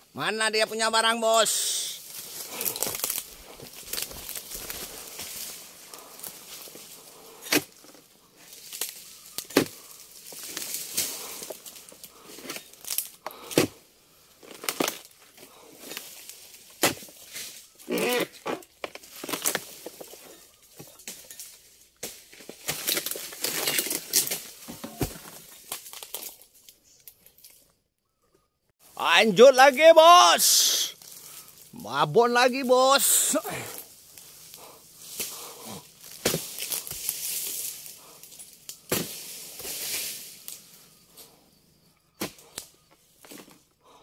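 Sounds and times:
crackling and tearing fibres: 2.0s - 6.6s, 8.5s - 13.5s
chisel knocking into palm fronds: 38.9s - 39.3s.

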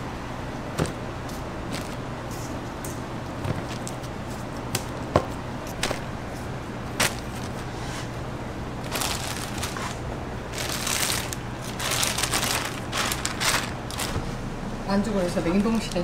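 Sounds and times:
steady low hum: 0.0s - 16.0s
plastic wrap crinkling: 7.0s - 7.7s, 8.8s - 14.2s.

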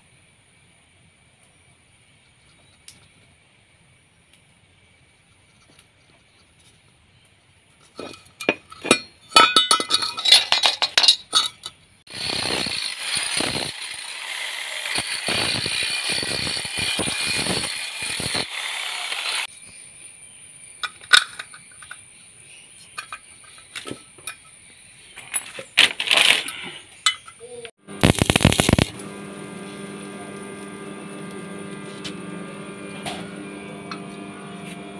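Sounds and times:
arc welding crackle: 12.1s - 19.5s, 27.8s - 34.9s.

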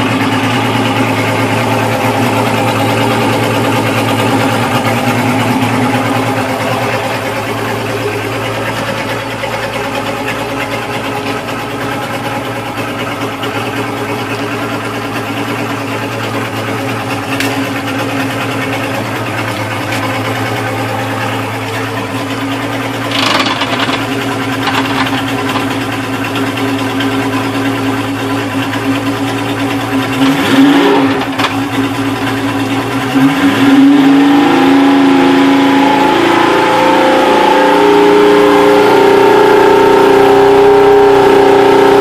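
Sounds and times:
outboard motor idling: 0.0s - 33.2s.

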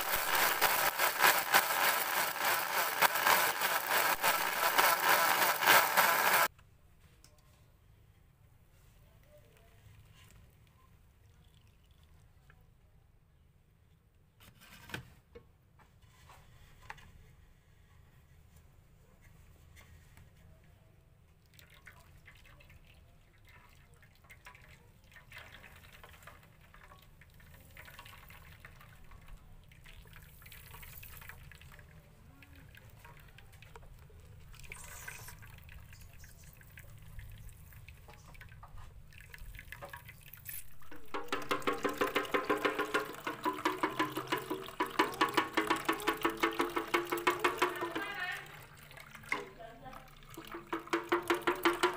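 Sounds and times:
juice dripping and trickling: 10.3s - 12.7s, 21.3s - 51.8s.

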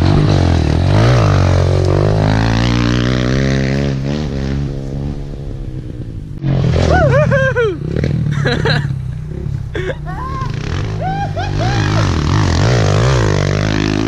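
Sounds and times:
motorcycle engine passing: 0.0s - 14.0s.

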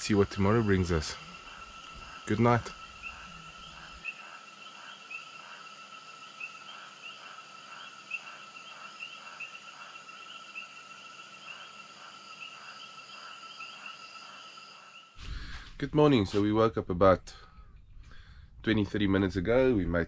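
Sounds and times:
insects and frogs trilling: 0.0s - 15.2s.

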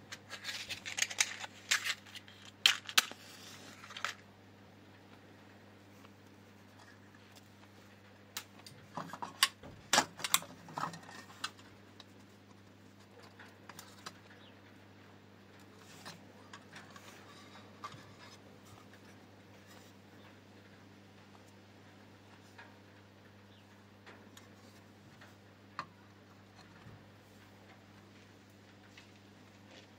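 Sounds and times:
small hard parts clicking: 0.0s - 4.2s.

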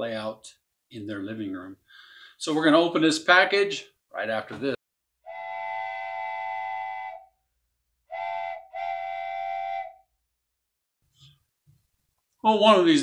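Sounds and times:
steam locomotive chime whistle: 5.3s - 7.2s, 8.1s - 9.9s.

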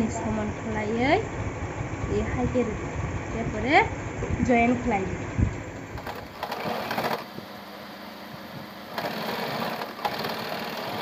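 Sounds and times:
sewing machine stitching: 6.0s - 7.3s, 8.9s - 11.0s.

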